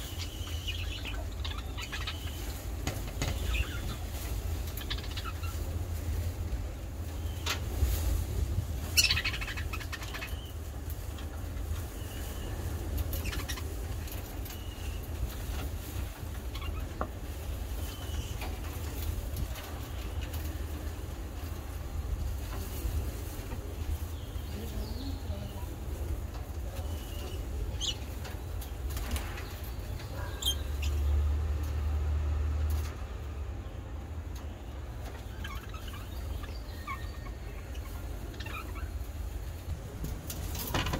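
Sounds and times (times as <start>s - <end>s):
budgerigars chirping: 0.0s - 2.6s, 8.9s - 10.6s, 30.1s - 31.0s.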